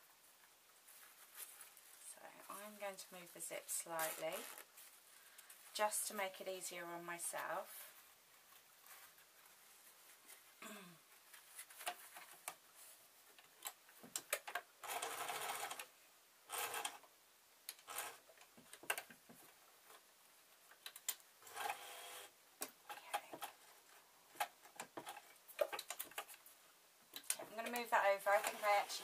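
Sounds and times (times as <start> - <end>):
clicks and fabric rustles: 0.0 - 6.6, 7.6 - 14.7
sewing machine stitching: 14.8 - 15.9.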